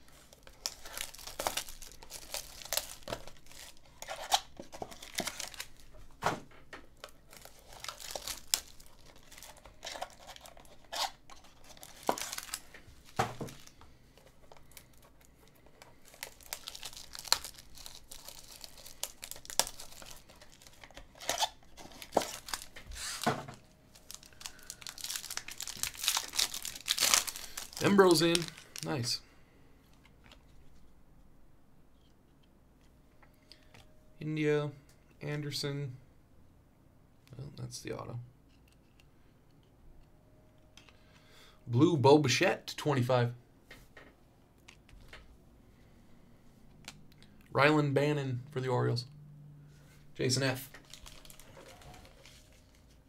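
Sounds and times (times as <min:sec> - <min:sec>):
foil packaging tearing and crinkling: 0:00.3 - 0:05.9, 0:07.2 - 0:13.7, 0:15.9 - 0:23.3, 0:23.9 - 0:29.0, 0:50.8 - 0:52.9.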